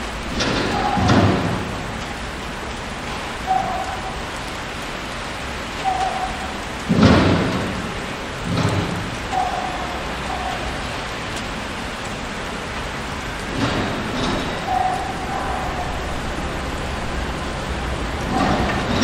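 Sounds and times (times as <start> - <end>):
traffic hiss: 0.0 - 19.0
heavy thud and rumble: 6.9 - 9.4
distant horn tones: 13.3 - 19.0.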